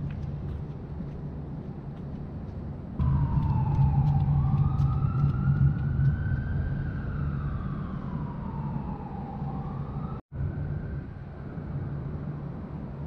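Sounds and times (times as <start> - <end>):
low rumble of traffic: 0.0 - 13.0
emergency siren wailing: 3.0 - 12.0.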